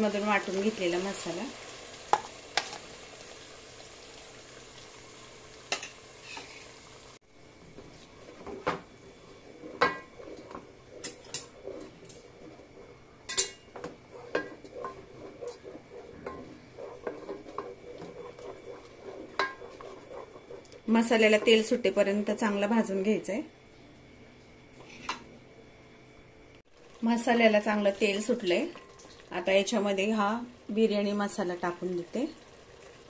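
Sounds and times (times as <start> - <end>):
paste sizzling in hot oil: 0.0 - 22.7, 31.6 - 33.0
wooden spatula scraping a pot: 6.2 - 6.8, 7.7 - 21.8.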